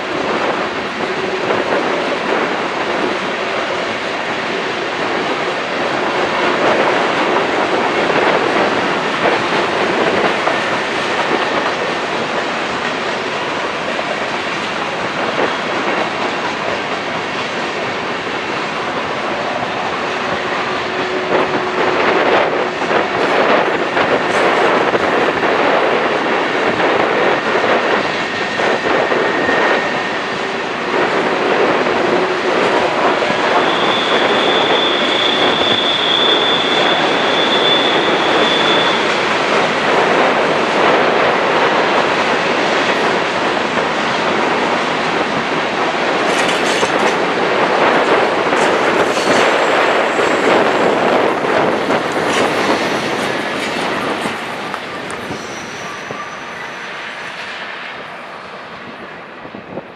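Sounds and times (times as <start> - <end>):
train wheels rumbling on rail: 0.0 - 59.9
wheel squeals: 33.3 - 39.2, 54.9 - 57.0.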